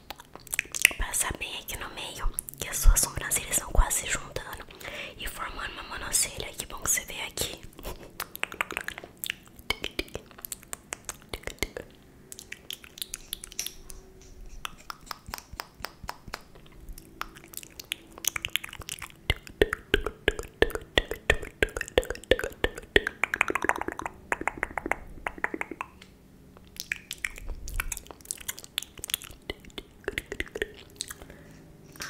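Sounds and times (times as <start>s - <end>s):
wet mouth clicks and pops: 0.0s - 1.2s, 8.2s - 14.0s, 14.6s - 32.0s.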